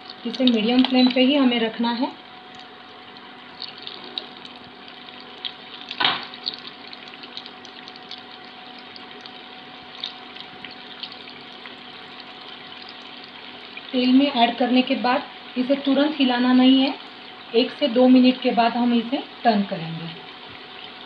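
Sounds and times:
oil popping and crackling: 0.0s - 1.4s, 2.3s - 14.0s
food deep-frying in hot oil: 0.0s - 21.0s.

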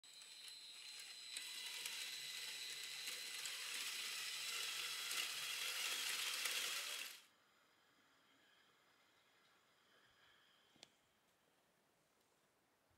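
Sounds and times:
toy train clicking and rattling: 0.1s - 7.2s
faint motor whine: 0.1s - 11.6s.

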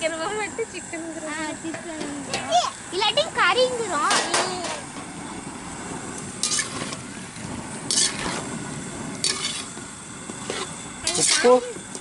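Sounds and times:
chicken sizzling in oil: 2.2s - 12.0s
metal spoon scraping pan: 6.4s - 7.0s, 7.9s - 8.5s, 9.2s - 9.8s, 10.4s - 11.6s.

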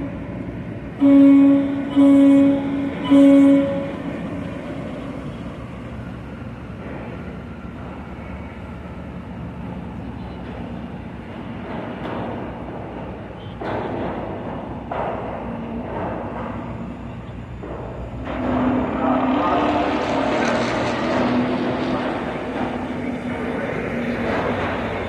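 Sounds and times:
boat engines rumbling: 0.0s - 25.0s.

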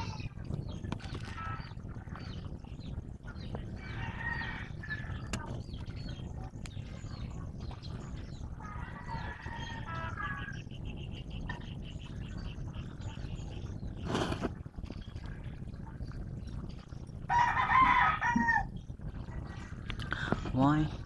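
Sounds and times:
small birds chirping: 0.0s - 17.1s
low rumble: 0.0s - 21.0s
roosters crowing: 3.8s - 5.3s, 8.6s - 10.6s, 17.3s - 18.7s.

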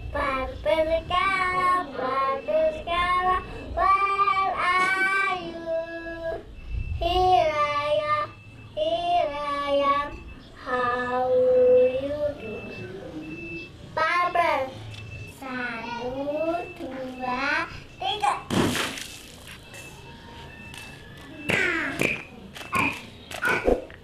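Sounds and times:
child singing: 0.0s - 12.8s, 14.0s - 18.5s.

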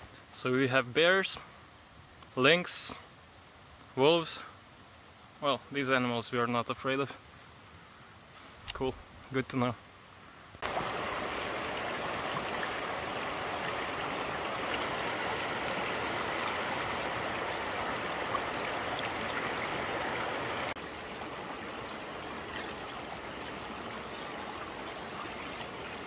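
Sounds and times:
stream flowing over rocks: 10.6s - 26.0s.

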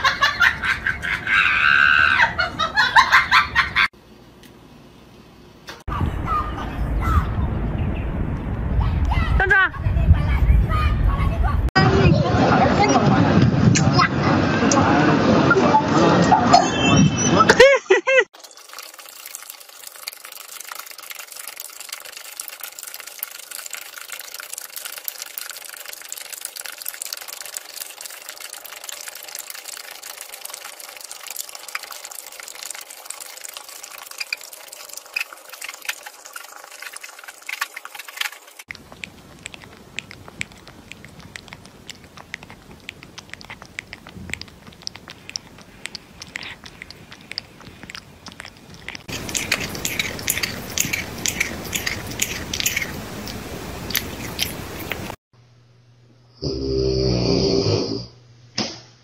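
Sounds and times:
dog slurping wet food: 18.4s - 55.2s
puppy lapping milk: 18.5s - 55.2s.

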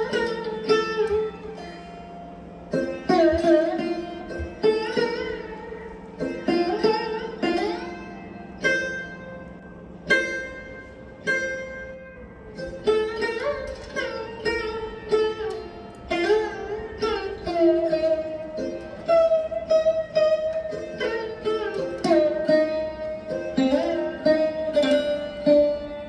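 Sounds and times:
plucked string instrumental music: 0.0s - 26.0s.

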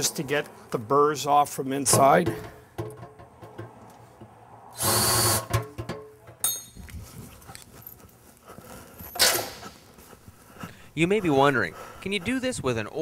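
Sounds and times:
small knocks: 1.9s - 4.4s
power drill burst: 4.8s - 5.5s.

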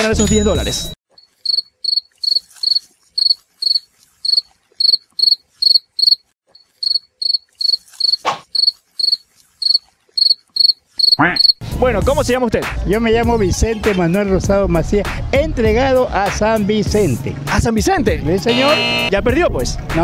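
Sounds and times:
cricket chirps: 1.2s - 11.6s.

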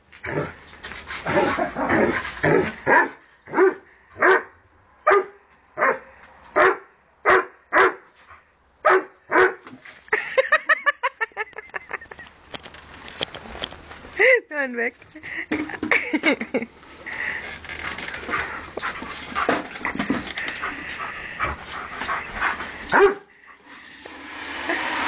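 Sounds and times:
dog barking: 2.9s - 4.5s, 5.1s - 8.0s, 8.8s - 9.6s, 22.9s - 23.3s.

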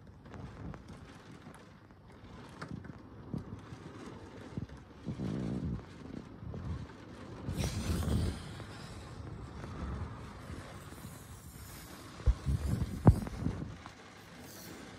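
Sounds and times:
rain falling: 0.0s - 14.9s
raindrops tapping on window: 0.0s - 14.9s
low rumble: 0.2s - 14.9s.

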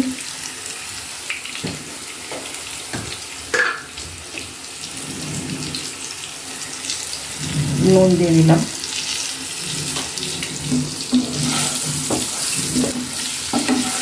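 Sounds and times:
potatoes sizzling in oil: 0.0s - 14.0s
spatula knocking on pan: 10.7s - 14.0s.

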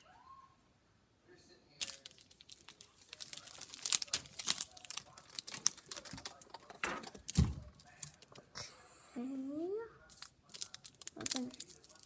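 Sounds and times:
plastic bag crinkling: 1.8s - 8.3s, 10.1s - 12.0s
plastic toys clicking: 1.8s - 8.4s, 10.1s - 12.0s.

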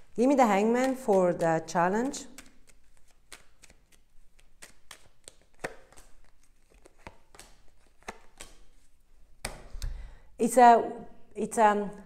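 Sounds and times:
cards being shuffled: 0.0s - 9.9s
card rustle: 0.8s - 9.0s.

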